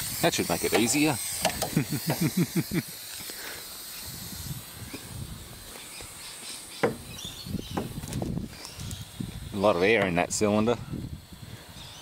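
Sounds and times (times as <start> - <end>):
compressed air hissing: 0.0 - 12.0
sharp knocks: 6.8 - 7.1.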